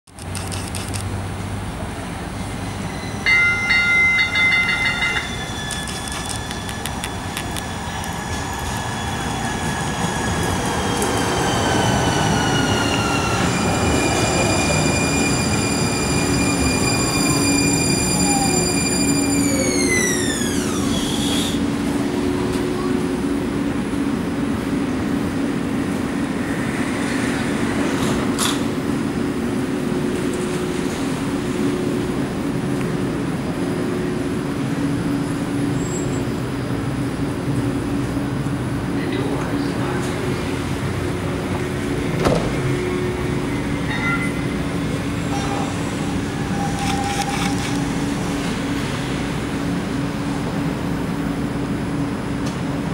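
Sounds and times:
low hum of standing train: 0.2s - 52.9s
train traction drive whining: 2.2s - 26.6s
ringing warning bell: 2.9s - 7.3s.

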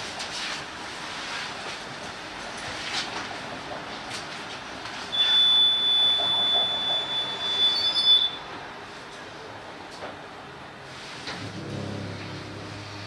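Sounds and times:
tram wheels squealing on rails: 5.1s - 8.7s
moving tram rumble: 8.4s - 13.0s.

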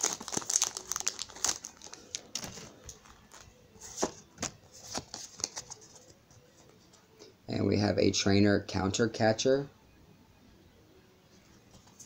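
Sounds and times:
foil wrapper crinkling: 0.0s - 3.5s.

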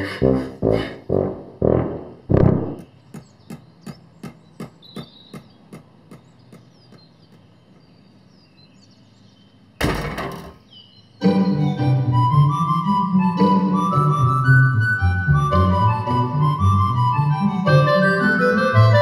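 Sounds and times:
faint bird chirps: 2.5s - 11.8s
flute melody: 11.2s - 19.0s.

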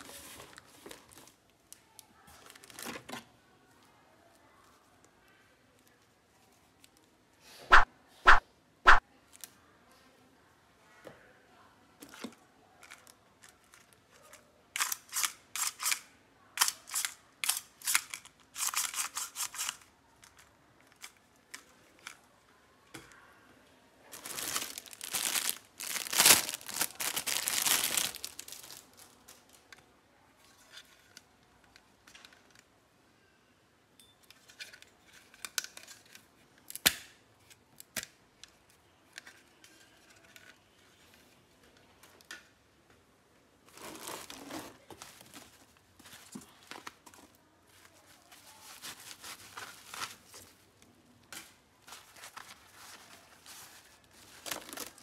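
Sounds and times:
plastic packaging crinkling: 2.3s - 3.1s, 24.1s - 29.5s, 43.7s - 50.6s, 51.8s - 55.0s.

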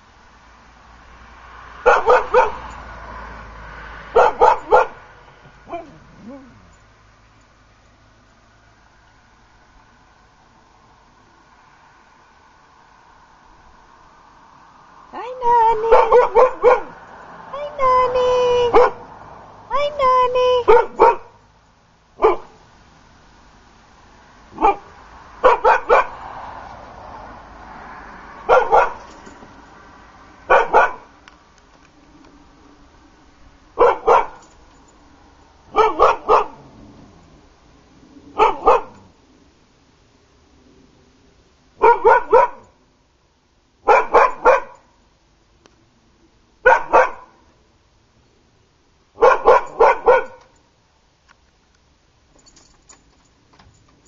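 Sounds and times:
dog barking: 1.8s - 2.7s, 4.1s - 5.1s, 15.9s - 17.0s, 18.7s - 19.1s, 20.6s - 21.4s, 22.2s - 22.6s, 24.6s - 26.2s, 28.4s - 29.1s, 30.5s - 31.1s, 33.8s - 34.4s, 35.7s - 36.7s, 38.4s - 39.1s, 41.8s - 42.7s, 43.8s - 44.9s, 46.6s - 47.4s, 49.2s - 50.5s.

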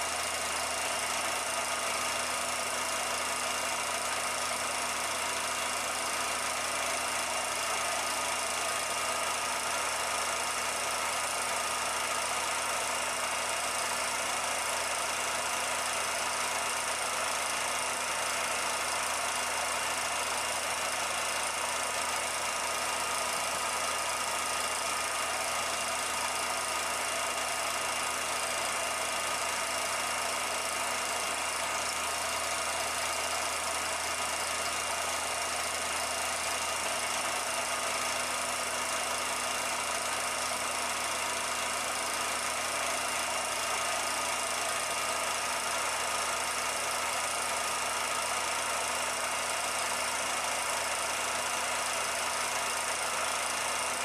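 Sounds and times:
film projector whirring: 0.0s - 54.0s.

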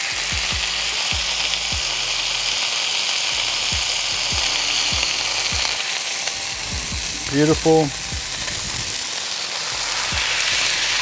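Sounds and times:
burger patties sizzling on griddle: 0.0s - 11.0s
low thuds: 6.6s - 9.0s.

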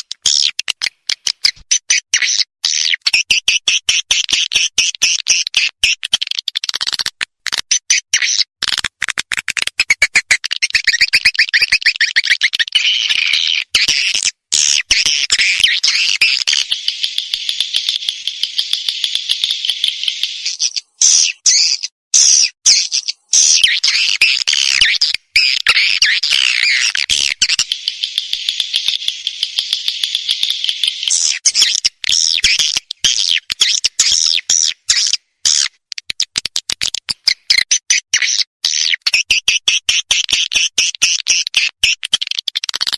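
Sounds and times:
swiftlets chirping and twittering: 10.6s - 35.6s.

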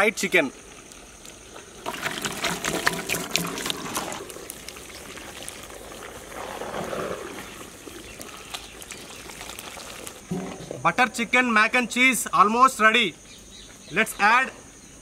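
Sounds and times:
soft wet noise: 0.6s - 10.9s.

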